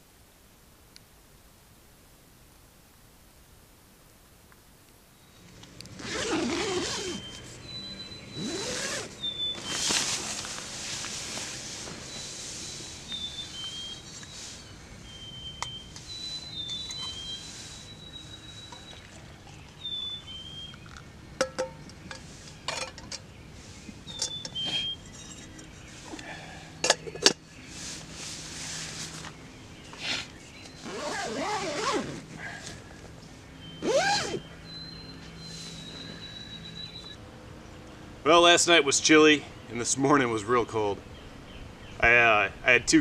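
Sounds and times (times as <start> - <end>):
small birds singing: 5.1 - 43.0
rustle of tent fabric: 5.9 - 7.6, 8.4 - 14.8, 16.0 - 19.0, 27.6 - 34.4
metal pot and mug clinking: 20.8 - 21.9, 26.8 - 27.4
sharp metal clanks: 21.4 - 23.2.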